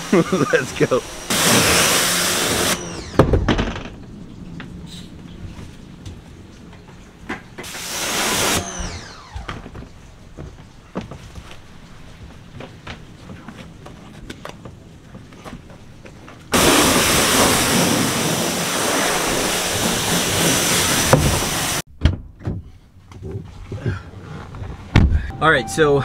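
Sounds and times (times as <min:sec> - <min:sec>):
pressure washer spraying: 0:00.0 - 0:03.0, 0:07.7 - 0:09.0, 0:16.6 - 0:21.8.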